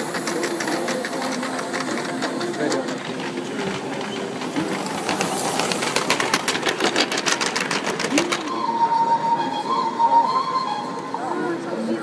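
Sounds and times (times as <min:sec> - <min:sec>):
rapid even clicking: 0:00.0 - 0:08.6
model train passing on track: 0:00.0 - 0:12.0.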